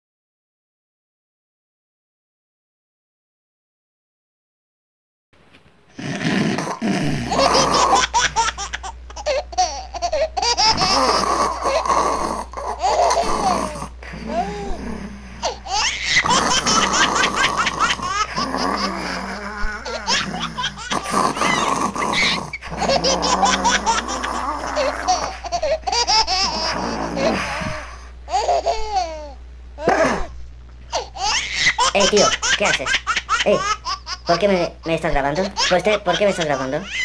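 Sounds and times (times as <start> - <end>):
low hum: 6.8 - 36.1
person laughing hard: 7.2 - 8.8, 10.1 - 11.8, 12.9 - 27.9.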